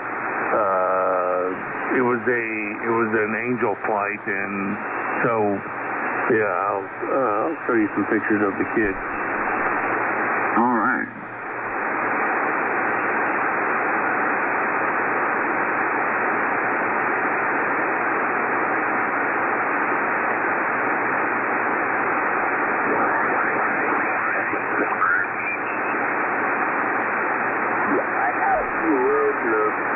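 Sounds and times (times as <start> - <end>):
radio static hiss: 0.0 - 29.9
faint warbling radio signal: 22.7 - 26.1, 27.6 - 29.9.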